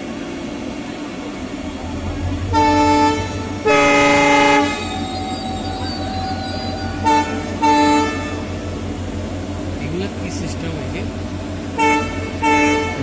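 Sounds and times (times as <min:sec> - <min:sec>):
train rumbling past: 0:00.0 - 0:13.0
train horn blasts: 0:01.9 - 0:09.2, 0:11.6 - 0:13.0.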